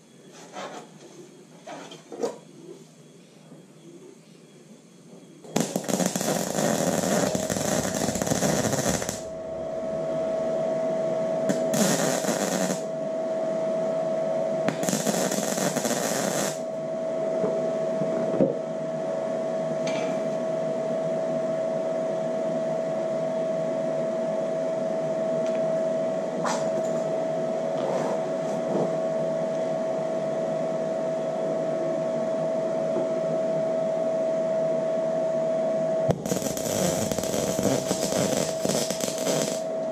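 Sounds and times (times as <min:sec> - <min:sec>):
steady high hum: 0:00.0 - 0:39.9
welding torch crackling: 0:05.5 - 0:09.4, 0:11.5 - 0:12.9, 0:14.7 - 0:16.7, 0:36.1 - 0:39.7.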